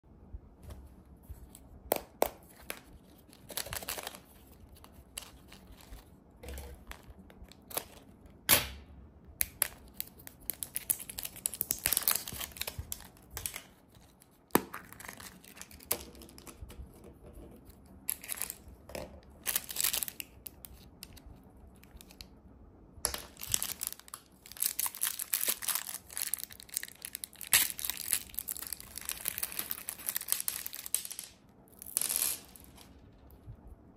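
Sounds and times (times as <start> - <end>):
plastic packet crinkling and tearing: 2.4 - 8.2, 9.6 - 16.4, 18.1 - 18.7, 19.4 - 21.2, 23.1 - 31.2.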